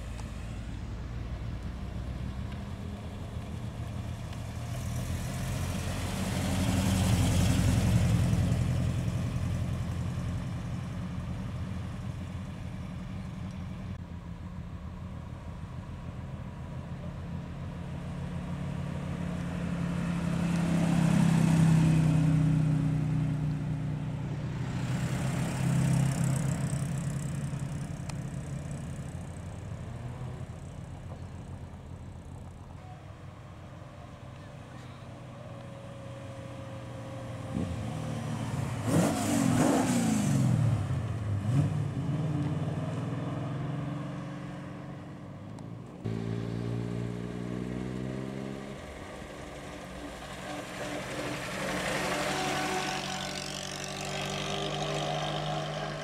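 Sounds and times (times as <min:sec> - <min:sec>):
cars driving past: 0:00.0 - 0:14.0, 0:15.6 - 0:56.0
car engine revving: 0:37.5 - 0:56.0.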